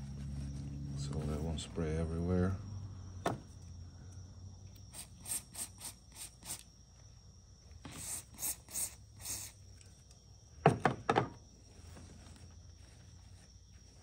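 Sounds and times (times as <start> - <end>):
aerosol spray hissing: 4.9 - 6.7, 7.8 - 9.6.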